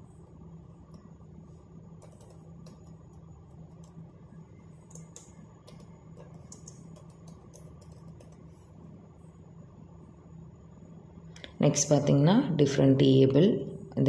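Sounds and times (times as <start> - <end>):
keyboard keys typing: 2.0 - 4.1, 4.8 - 8.5.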